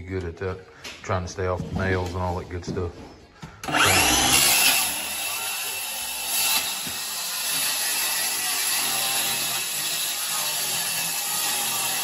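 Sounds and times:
circular saw cutting board: 3.6 - 12.0.

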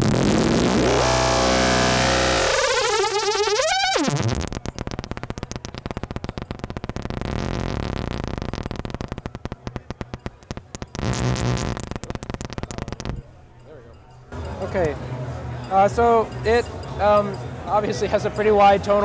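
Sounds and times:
buzzy electronic pulsing tone: 0.0 - 13.3.

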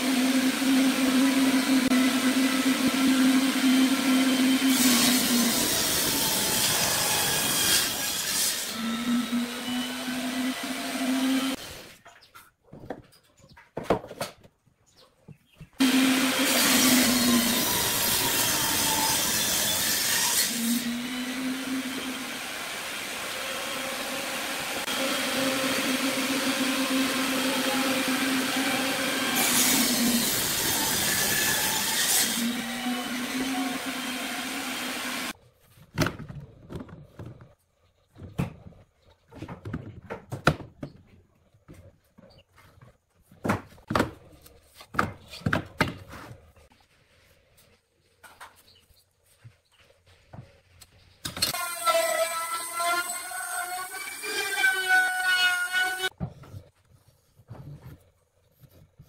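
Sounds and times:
wood lathe humming: 0.0 - 7.2, 20.8 - 35.4
tool cutting spinning wood: 15.8 - 35.4.

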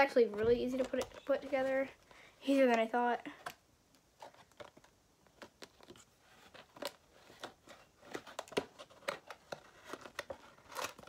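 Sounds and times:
cardboard packaging rustling: 4.1 - 11.0.

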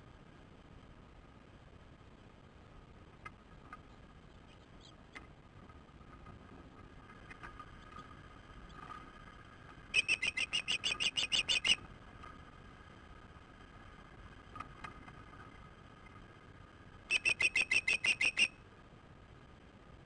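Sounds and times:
faint bird peeps: 4.5 - 5.0, 9.9 - 11.8, 17.1 - 18.6
bird whistled chirps: 9.9 - 11.8, 17.1 - 18.6.

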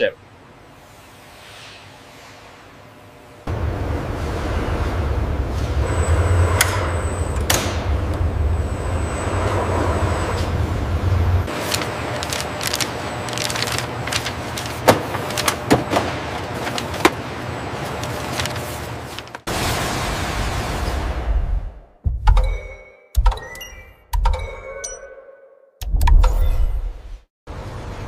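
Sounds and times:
machinery rumble with high whine: 2.2 - 21.2.

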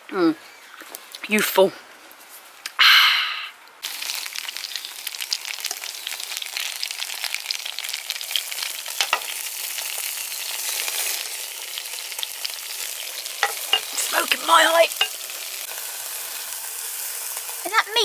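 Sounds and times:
sausages sizzling in a frying pan: 3.8 - 18.0.

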